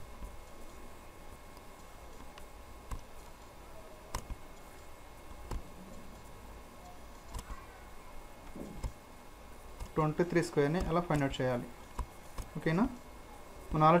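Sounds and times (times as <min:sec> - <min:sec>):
faint room noise: 0:00.0 - 0:14.0
computer mouse clicking: 0:04.1 - 0:06.0, 0:06.8 - 0:07.5.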